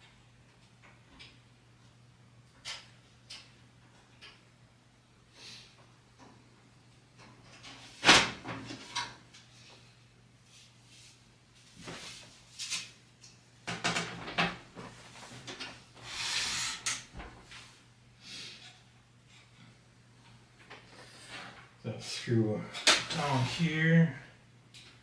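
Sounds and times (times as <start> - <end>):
panel scraping slide: 16.0 - 17.0.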